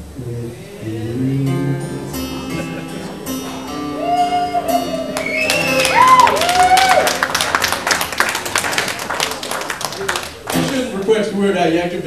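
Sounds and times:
guitar chord ringing: 0:00.0 - 0:06.4
audience whooping: 0:02.6 - 0:10.4
audience clapping: 0:05.0 - 0:11.2.

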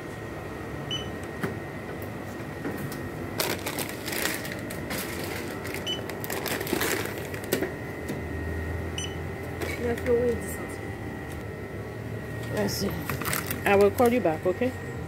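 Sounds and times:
electronic checkout beeps: 0:00.9 - 0:01.2, 0:05.8 - 0:06.1, 0:09.0 - 0:09.2
groceries rustling and knocking: 0:02.6 - 0:08.2, 0:12.6 - 0:14.2.

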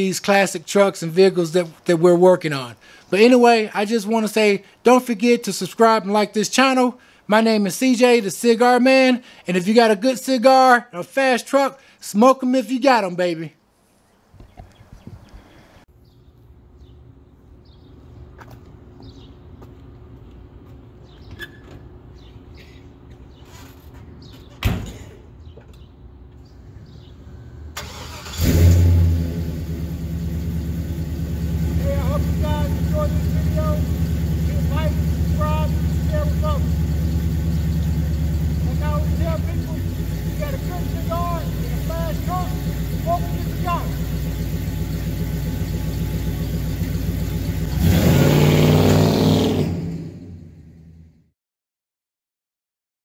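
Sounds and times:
pickup truck engine idling and revving: 0:27.8 - 0:51.1
steady low rumble: 0:29.2 - 0:47.7.

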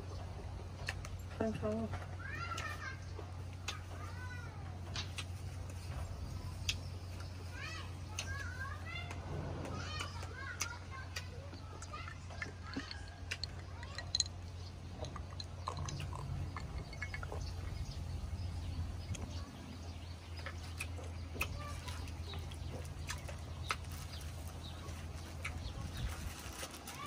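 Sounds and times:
steady low hum: 0:03.2 - 0:26.0
person chewing: 0:08.1 - 0:18.1, 0:20.4 - 0:24.6.

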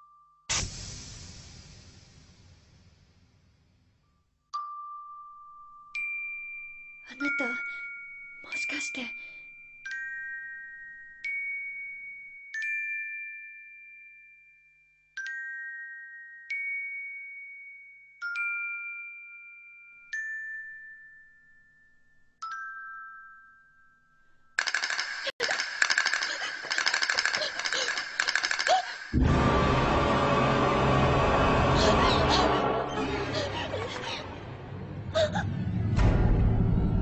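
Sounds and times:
bell-like mallet chimes: 0:04.1 - 0:24.5
loud harsh rattling: 0:24.6 - 0:29.6.

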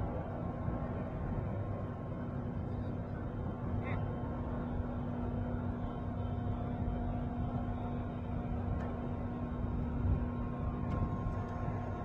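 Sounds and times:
constant low hum: 0:00.0 - 0:12.0
low outdoor rumble: 0:00.0 - 0:12.0.

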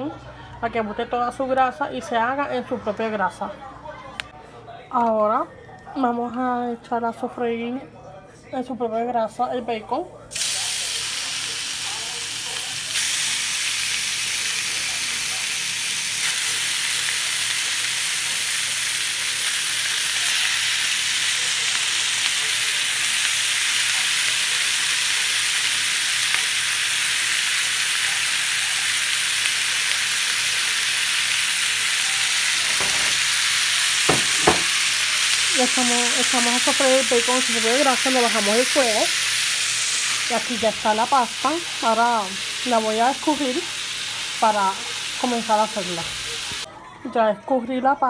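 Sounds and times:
bacon sizzling in a frying pan: 0:10.3 - 0:46.7.

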